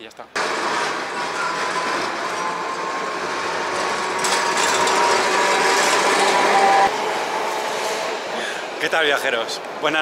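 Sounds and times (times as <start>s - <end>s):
metallic whine and squeal: 0.4s - 8.3s
tram wheels rumbling on rails: 0.4s - 10.0s.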